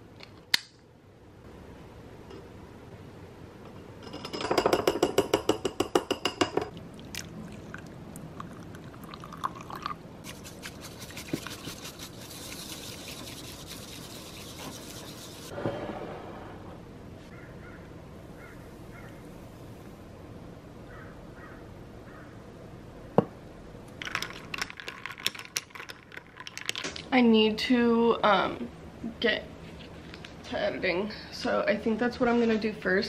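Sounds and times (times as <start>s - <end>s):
hot water pouring into a bowl: 7.1s - 14.1s
bamboo whisk brushing in a bowl: 10.2s - 15.5s
fast rhythmic scraping: 10.2s - 15.5s.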